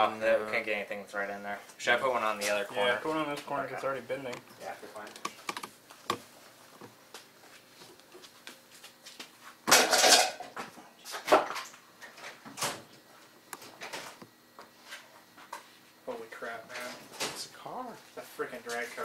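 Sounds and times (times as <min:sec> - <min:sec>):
knocks and clicks: 0:04.3 - 0:06.2.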